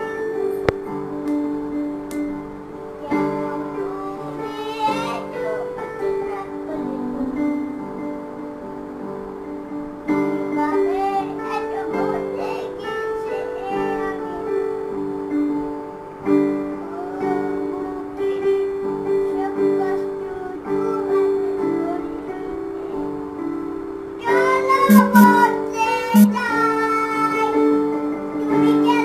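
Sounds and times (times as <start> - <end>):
young child singing: 0.0 - 0.8, 3.0 - 7.7, 10.4 - 15.1, 16.7 - 23.4, 24.2 - 29.0
digital piano chords: 22.3 - 26.9.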